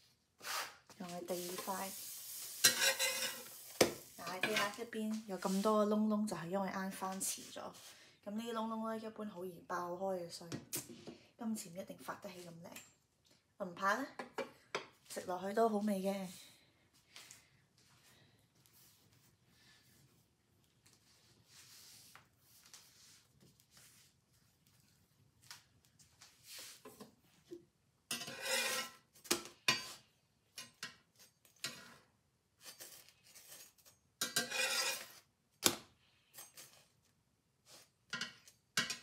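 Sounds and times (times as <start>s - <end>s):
metal spatula scraping skillet: 0.4s - 5.7s, 28.1s - 29.1s, 29.7s - 32.0s, 32.6s - 35.3s.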